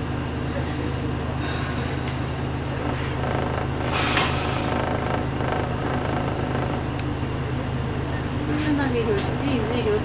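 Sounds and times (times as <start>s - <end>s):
bus engine droning: 0.0s - 10.0s
compressed air hiss: 3.8s - 4.7s.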